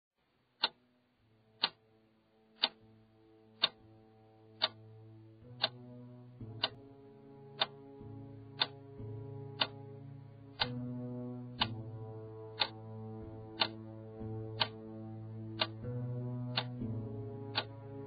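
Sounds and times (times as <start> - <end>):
clock ticking: 0.6 - 0.8, 1.6 - 1.8, 2.6 - 2.8, 3.6 - 3.8, 4.6 - 4.8, 5.6 - 5.8, 6.6 - 6.8, 7.6 - 7.8, 8.6 - 8.8, 9.6 - 9.8, 10.6 - 10.8, 11.6 - 11.8, 12.6 - 12.8, 13.6 - 13.8, 14.6 - 14.8, 15.6 - 15.9, 16.5 - 16.8, 17.4 - 17.8
soft sustained musical chord: 0.8 - 18.0.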